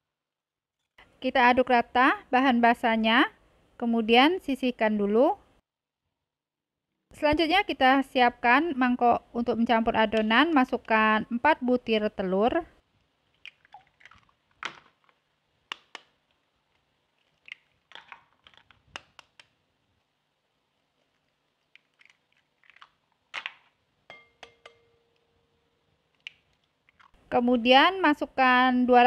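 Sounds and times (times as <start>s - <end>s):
eggshells cracking into bowl: 17.2s - 19.5s, 21.7s - 23.8s.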